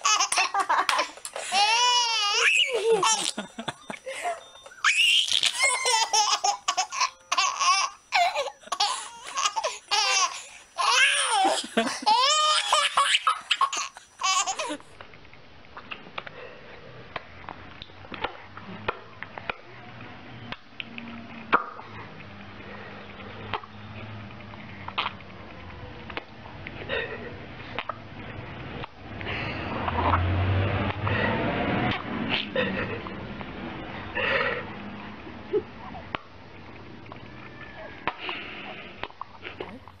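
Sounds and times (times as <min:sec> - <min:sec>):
baby laughing: 0:00.0 - 0:04.0, 0:04.8 - 0:14.9.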